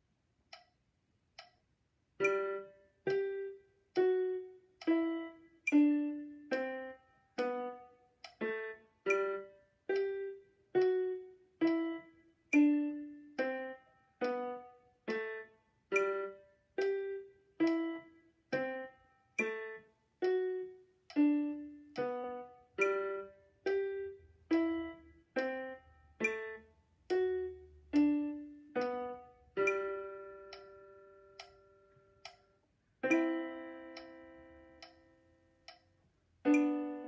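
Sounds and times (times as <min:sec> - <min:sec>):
electronic keyboard melody: 0:02.2 - 0:37.0.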